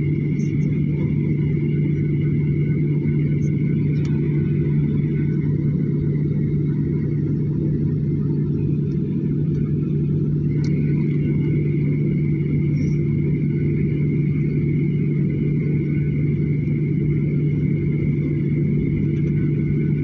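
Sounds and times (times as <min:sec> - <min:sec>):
faint high whine: 0:00.0 - 0:20.0
jet cabin rumble: 0:00.0 - 0:20.0.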